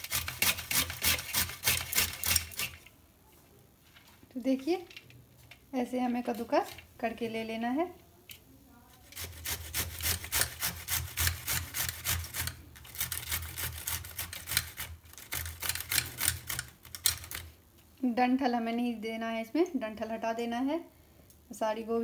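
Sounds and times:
cauliflower rasping on a grater: 0.0 - 2.8, 9.0 - 16.6.

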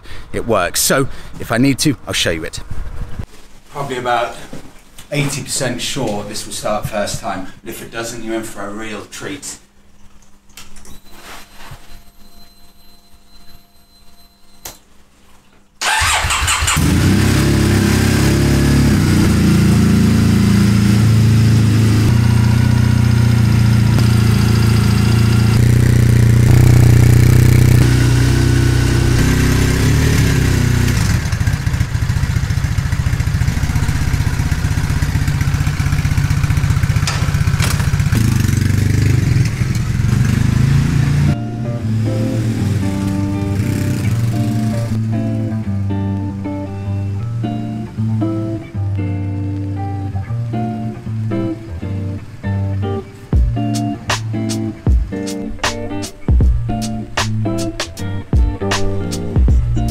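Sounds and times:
electric starter cranking: 15.8 - 20.0, 22.1 - 41.2
motorcycle engine idling: 15.8 - 41.3.

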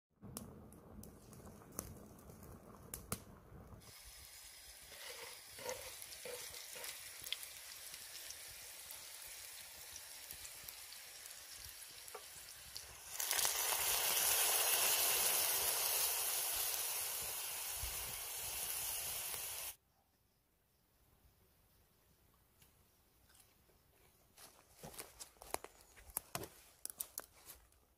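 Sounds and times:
food sizzling in a pan: 3.8 - 19.8.

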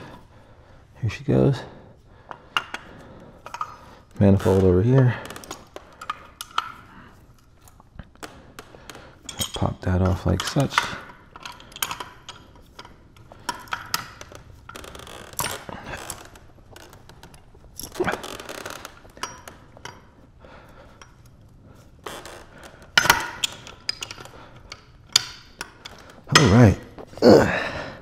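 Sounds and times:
wrenches clanking on metal pipe: 2.3 - 6.8, 9.2 - 16.2, 17.8 - 20.1, 22.8 - 27.1.

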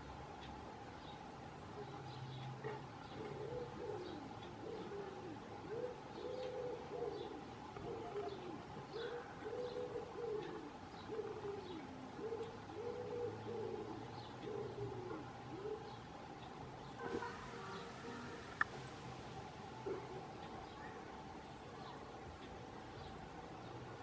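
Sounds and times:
small birds chirping: 0.0 - 24.0
pigeon cooing: 2.6 - 16.1.

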